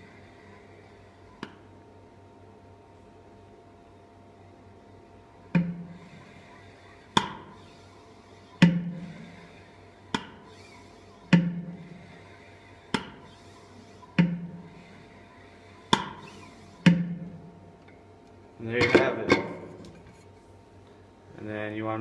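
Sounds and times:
steady low hum: 0.0s - 22.0s
syringe plunger knocking: 11.3s - 11.7s, 14.0s - 14.6s.

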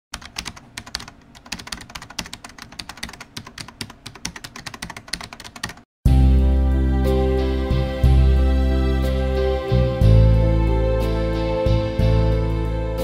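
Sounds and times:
rapid typing on keyboard: 0.1s - 5.9s.

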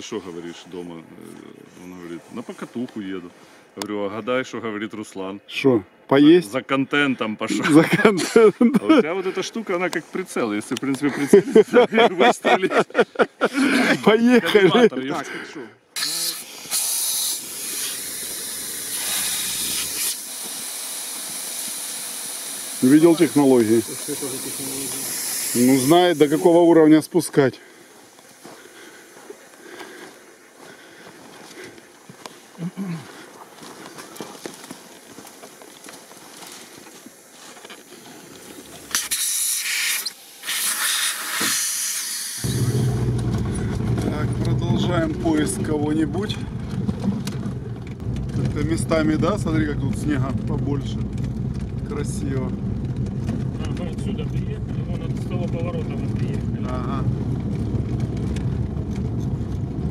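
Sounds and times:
air hissing out of tyre: 16.0s - 26.7s, 38.9s - 43.8s
vehicle engine running: 42.4s - 59.9s.

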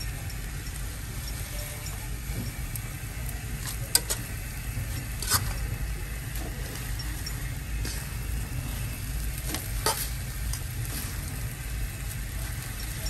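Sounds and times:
food sizzling in a wok: 0.1s - 13.0s
tongs clicking against pan: 3.6s - 4.3s, 9.4s - 10.7s.

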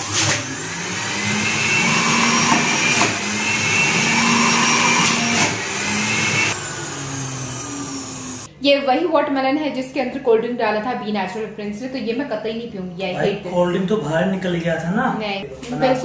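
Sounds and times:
juicer motor whining: 0.0s - 8.5s.

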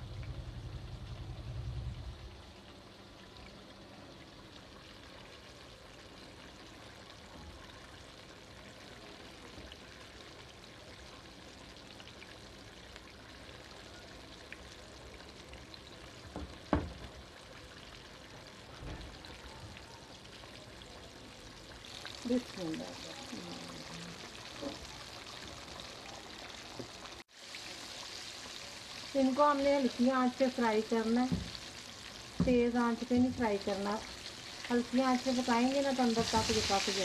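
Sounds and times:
chicken frying in hot oil: 0.0s - 37.0s
knock: 16.3s - 17.1s, 31.3s - 31.6s.

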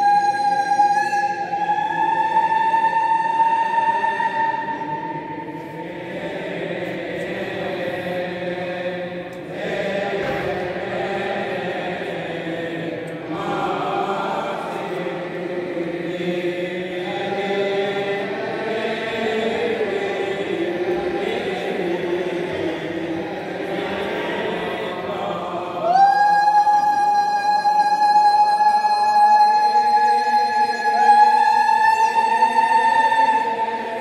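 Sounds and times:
men chanting in unison: 4.6s - 26.1s.

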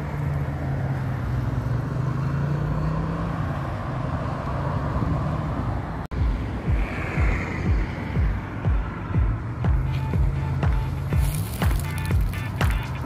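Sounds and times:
road traffic noise: 0.0s - 13.0s
vehicle engine drone: 0.0s - 13.0s
music with bass beat: 6.1s - 13.0s.

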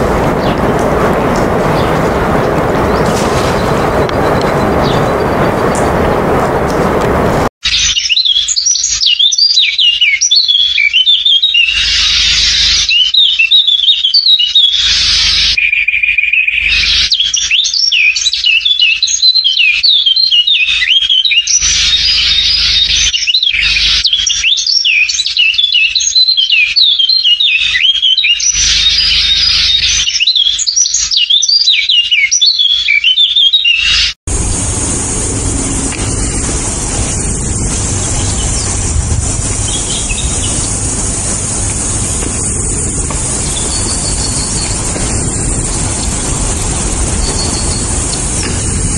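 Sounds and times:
birds chirping: 0.0s - 48.9s
steady hiss: 34.3s - 48.9s.

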